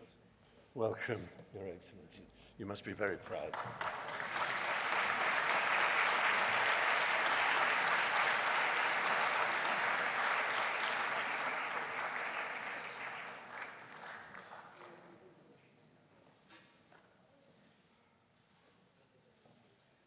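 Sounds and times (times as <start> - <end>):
audience applauding: 3.5 - 15.1.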